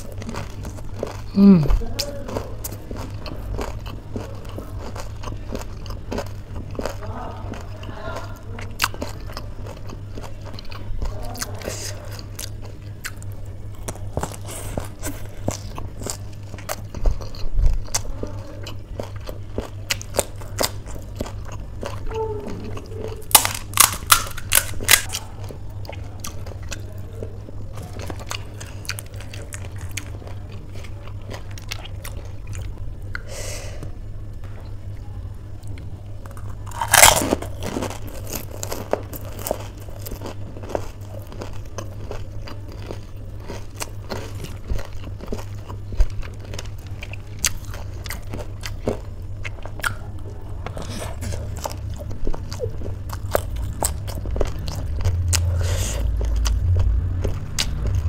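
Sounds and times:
chewing crunchy snacks: 0.0 - 33.8, 34.4 - 58.0
steady low hum: 0.0 - 58.0.

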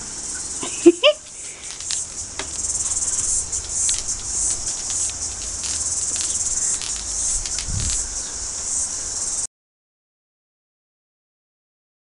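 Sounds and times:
cicadas shrilling: 0.0 - 9.5
sharp clicks: 1.6 - 8.1.

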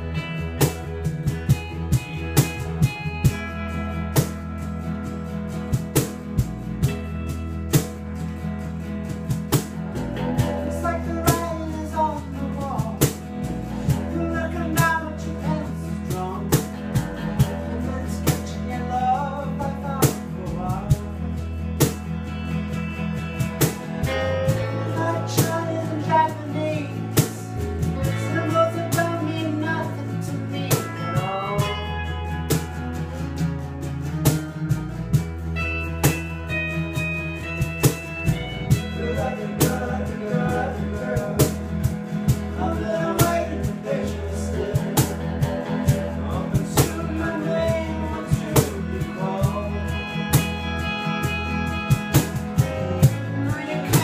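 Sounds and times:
cajon beat: 0.0 - 54.0
electric bass: 0.0 - 54.0
electric guitar: 0.0 - 54.0
strummed acoustic guitar: 0.0 - 54.0
man singing: 10.4 - 21.5, 24.1 - 32.0, 38.7 - 51.3, 52.6 - 54.0.

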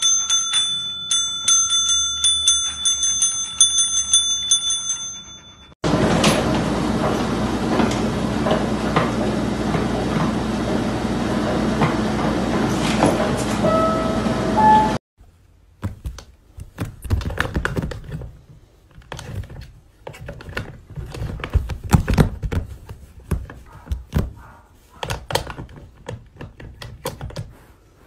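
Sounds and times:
service bell dinging: 0.0 - 5.8, 13.6 - 15.0.

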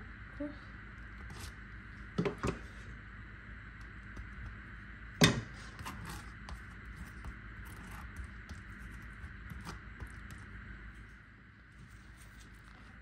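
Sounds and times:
spatula scraping filling on wafer: 1.1 - 1.7, 5.6 - 11.2.

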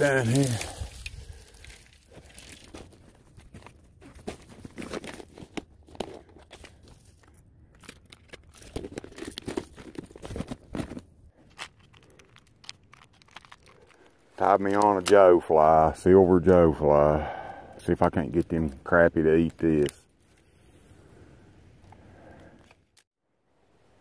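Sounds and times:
fishing tackle rustling and clicking: 0.0 - 3.8, 4.4 - 15.8.

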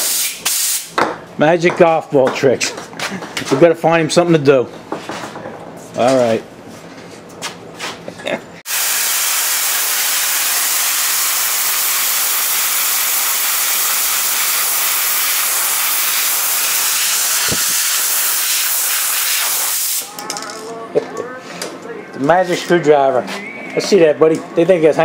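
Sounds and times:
air blow gun hissing: 0.0 - 0.9, 8.7 - 20.1.

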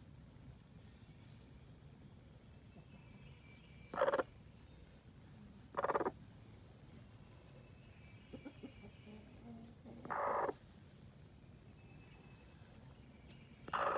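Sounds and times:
hen calling: 3.9 - 4.3, 5.7 - 6.2, 10.0 - 10.6, 13.6 - 13.9.

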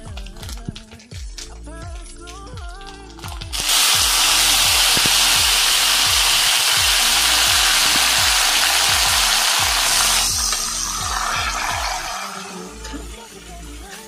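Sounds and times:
leaves sizzling in hot oil: 2.8 - 14.0.

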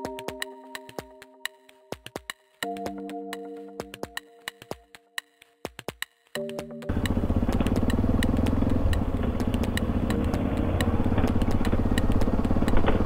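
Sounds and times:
sharp ticks: 0.0 - 13.0
motorcycle engine rumbling: 6.9 - 13.0
road and wind noise: 6.9 - 13.0.

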